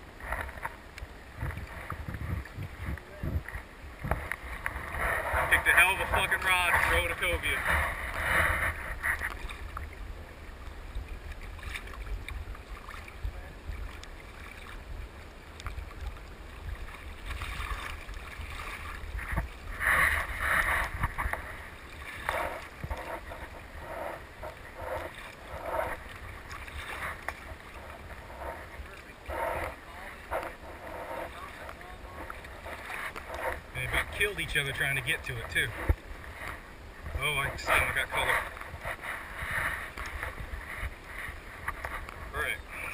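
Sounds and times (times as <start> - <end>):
water splashing against kayak hull: 0.0 - 42.9
wind rumbling on microphone: 0.0 - 42.9.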